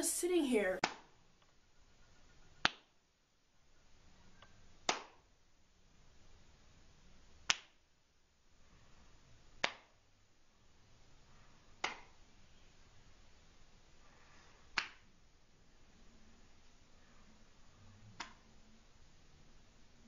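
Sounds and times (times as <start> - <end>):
faint room hiss: 0.0 - 20.0
finger snaps: 2.6 - 2.9, 7.5 - 7.8, 9.6 - 9.9, 11.8 - 12.1, 14.8 - 15.0, 18.2 - 18.4.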